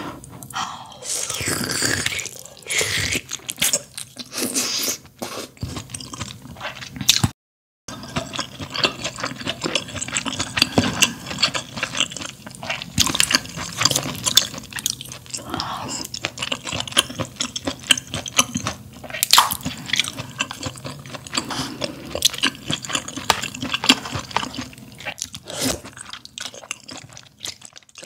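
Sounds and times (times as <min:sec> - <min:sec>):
wet chewing: 0:07.9 - 0:28.0
slurping broth from a spoon: 0:25.4 - 0:26.0.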